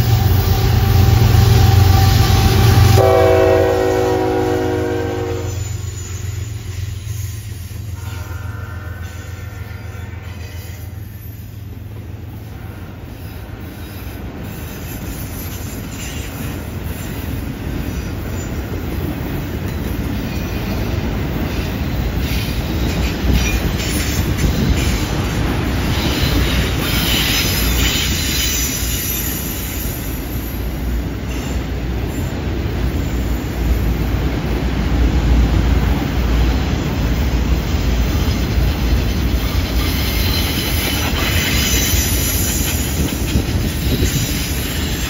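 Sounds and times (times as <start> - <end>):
train wheels rumbling on rails: 0.0 - 45.0
high-pitched wheel squeal: 5.4 - 11.7, 38.9 - 43.0.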